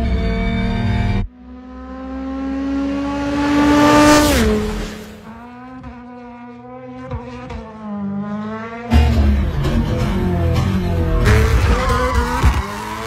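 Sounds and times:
car passing at speed: 1.3 - 9.0.

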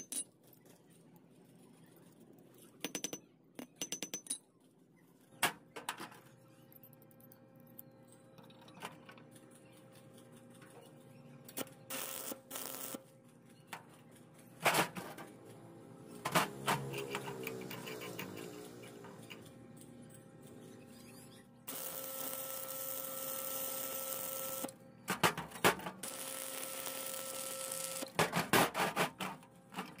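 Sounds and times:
metal clinks and knocks: 2.6 - 4.6, 16.8 - 21.1
metal scraping: 13.4 - 21.6.

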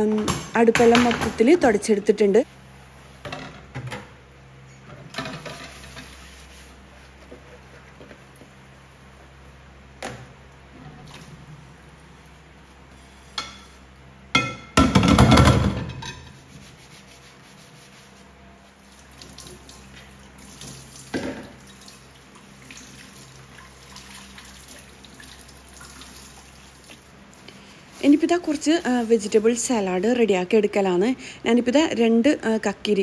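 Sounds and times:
dishes knocking: 14.3 - 16.3
tap water splashing over dishes: 19.0 - 27.2.

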